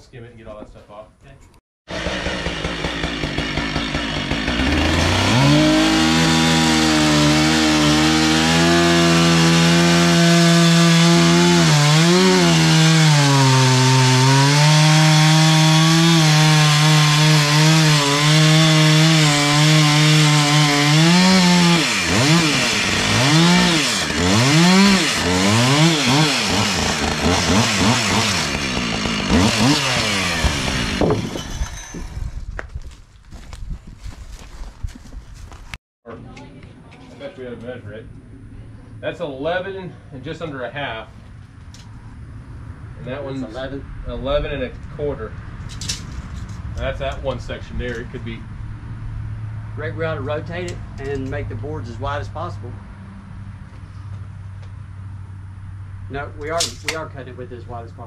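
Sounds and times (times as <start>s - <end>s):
chainsaw cutting wood: 1.9s - 32.6s.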